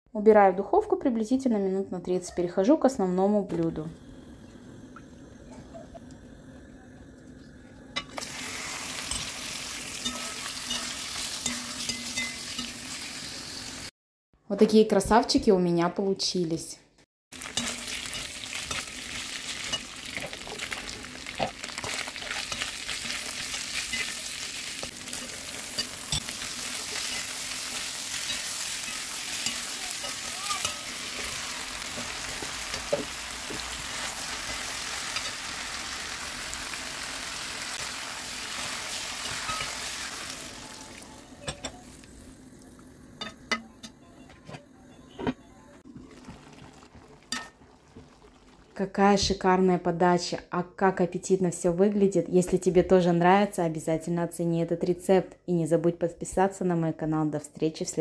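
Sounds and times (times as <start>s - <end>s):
food sizzling in a pan: 7.4s - 13.9s, 17.3s - 43.8s, 45.8s - 49.0s
spatula scraping a pan: 10.0s - 12.8s.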